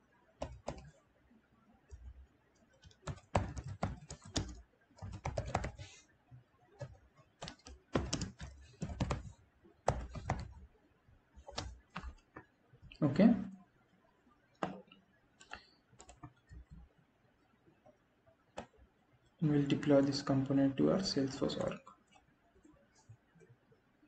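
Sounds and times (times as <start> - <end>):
typing on a keyboard: 0.4 - 1.0, 1.9 - 5.9, 6.8 - 10.6, 11.4 - 12.5, 14.6 - 16.9, 21.3 - 22.3.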